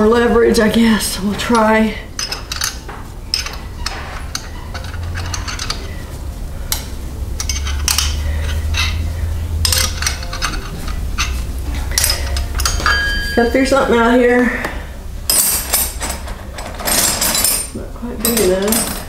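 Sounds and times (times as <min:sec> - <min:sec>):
steady low rumble: 0:00.0 - 0:17.0
wrench clinking on metal: 0:01.5 - 0:05.9, 0:06.7 - 0:09.0, 0:09.6 - 0:13.7, 0:15.3 - 0:19.0.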